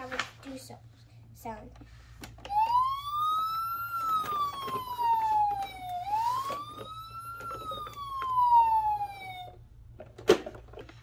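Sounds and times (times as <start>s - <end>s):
toy electronic siren wailing: 2.5s - 9.6s.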